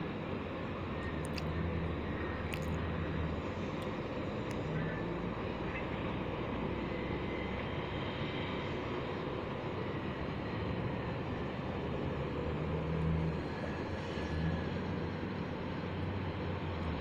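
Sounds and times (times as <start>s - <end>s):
distant heavy machinery drone: 0.0s - 17.0s
faint low engine hum: 0.0s - 17.0s.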